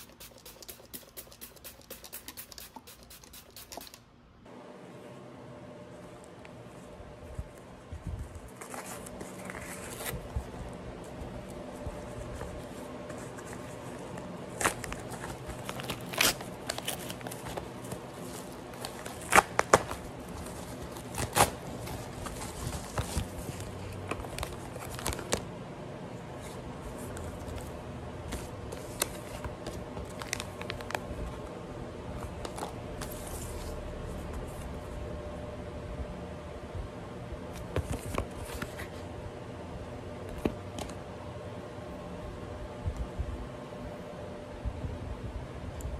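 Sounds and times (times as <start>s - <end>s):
paper packaging rustling and tearing: 8.4s - 10.6s, 12.2s - 25.4s, 28.3s - 31.3s.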